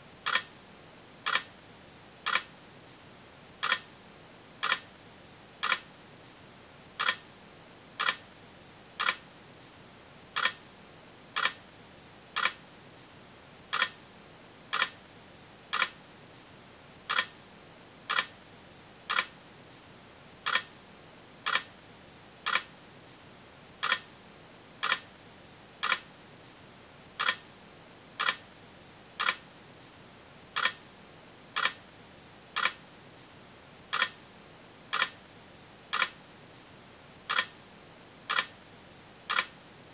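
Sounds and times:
faint steady hiss: 0:00.0 - 0:39.9
sharp ticks: 0:00.2 - 0:00.5, 0:01.3 - 0:01.5, 0:02.3 - 0:02.5, 0:03.6 - 0:03.9, 0:04.6 - 0:04.8, 0:05.6 - 0:05.8, 0:07.0 - 0:07.2, 0:08.0 - 0:08.2, 0:09.0 - 0:09.2, 0:10.4 - 0:10.6, 0:11.4 - 0:11.6, 0:12.4 - 0:12.6, 0:13.7 - 0:14.0, 0:14.7 - 0:15.0, 0:15.7 - 0:16.0, 0:17.1 - 0:17.3, 0:18.1 - 0:18.3, 0:19.1 - 0:19.3, 0:20.4 - 0:20.7, 0:21.5 - 0:21.7, 0:22.5 - 0:22.7, 0:23.8 - 0:24.0, 0:24.8 - 0:25.0, 0:25.8 - 0:26.0, 0:27.2 - 0:27.4, 0:28.2 - 0:28.4, 0:29.2 - 0:29.4, 0:30.6 - 0:30.8, 0:31.6 - 0:31.8, 0:32.6 - 0:32.8, 0:33.9 - 0:34.2, 0:34.9 - 0:35.2, 0:35.9 - 0:36.2, 0:37.3 - 0:37.5, 0:38.3 - 0:38.5, 0:39.3 - 0:39.5.

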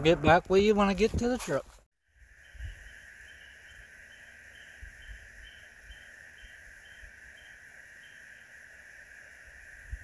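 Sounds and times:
insects droning: 0:02.0 - 0:10.0.

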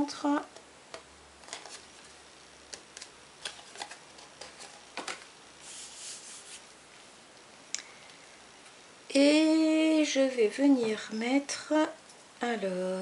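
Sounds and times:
soft rubbing swish of card: 0:05.6 - 0:06.7.

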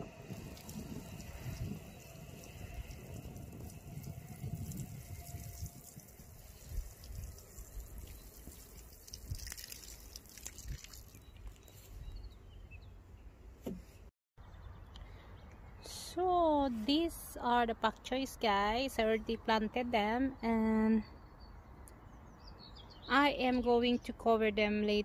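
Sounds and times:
water sprinkling onto soil: 0:00.0 - 0:11.6.

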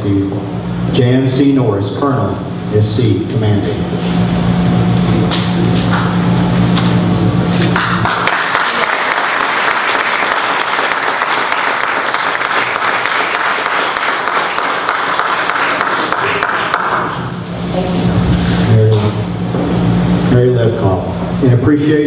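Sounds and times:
audience applauding: 0:07.6 - 0:17.2.

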